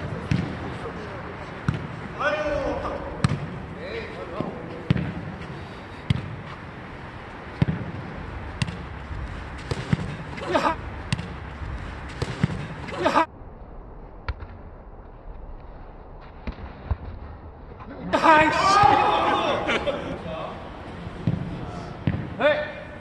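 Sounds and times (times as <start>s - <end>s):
players shouting: 0.1s - 4.9s, 18.1s - 23.0s
ball thudding: 3.1s - 3.6s, 4.4s - 5.3s, 6.0s - 6.6s, 7.5s - 13.0s, 21.2s - 22.4s.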